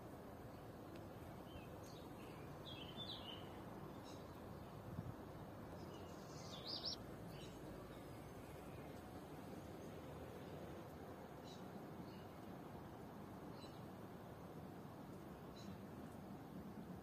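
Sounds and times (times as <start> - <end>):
faint outdoor background noise: 0.0 - 17.0
bird chirping: 1.4 - 4.8, 5.7 - 8.1.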